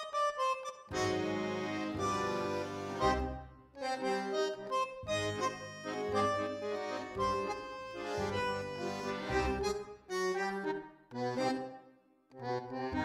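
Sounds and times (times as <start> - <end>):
background music with held notes: 0.0 - 13.0
bass line: 0.9 - 3.5, 5.0 - 9.8.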